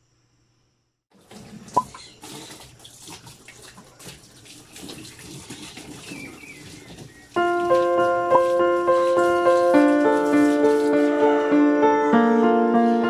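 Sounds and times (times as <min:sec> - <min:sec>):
water splashing into tub: 0:01.1 - 0:11.2.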